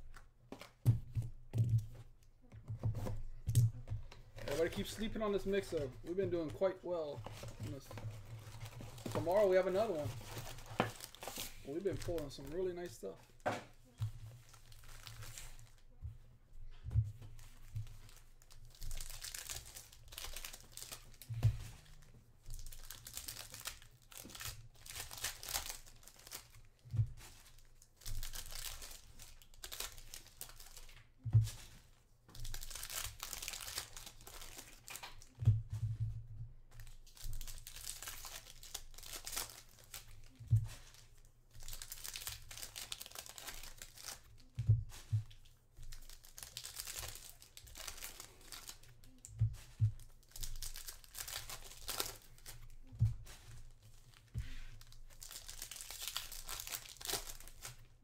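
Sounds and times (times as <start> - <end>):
cards handled: 0.1 - 12.6, 36.8 - 57.8
wrappers crinkling: 3.4 - 16.0, 17.3 - 35.4, 36.8 - 58.0
foil packs tearing: 4.4 - 5.9, 8.5 - 13.0, 18.2 - 21.3, 22.5 - 26.7, 27.5 - 30.9, 32.4 - 35.3, 37.1 - 41.0, 41.6 - 44.5, 45.8 - 49.2, 50.2 - 52.6, 54.8 - 57.8.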